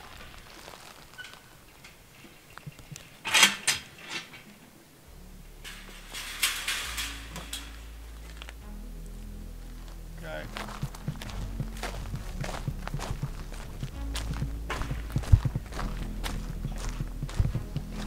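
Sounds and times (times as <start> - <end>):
metal gate clanking and rattling: 1.2 - 4.8, 5.5 - 8.6
soft background music: 4.1 - 18.0.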